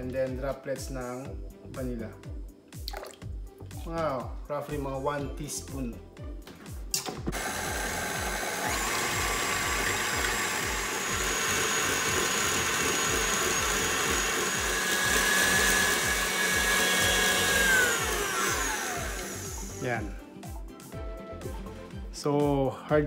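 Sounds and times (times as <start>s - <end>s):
stand mixer whining: 7.3s - 20.1s.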